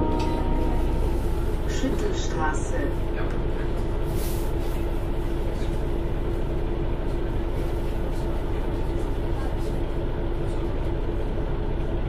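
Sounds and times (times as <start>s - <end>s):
constant whine: 0.0s - 3.4s
city bus engine drone: 0.0s - 12.0s.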